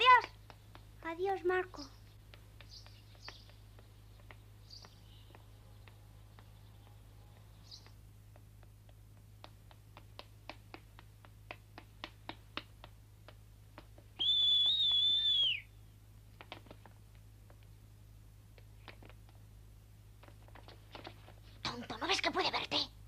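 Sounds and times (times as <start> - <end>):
footsteps on stone paving: 0.0 - 13.1
loud high whistle: 14.2 - 15.7.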